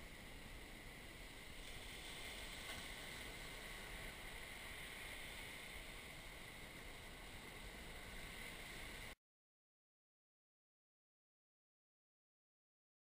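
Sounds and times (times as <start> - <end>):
faint outdoor hiss: 0.0 - 9.2.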